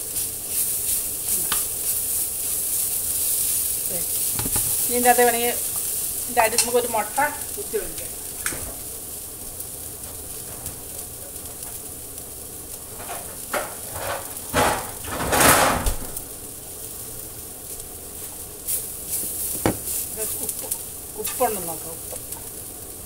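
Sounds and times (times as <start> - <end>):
greens frying in a pan: 0.0 - 23.0
kitchen knocks: 4.4 - 4.8, 13.0 - 16.1, 19.5 - 19.9.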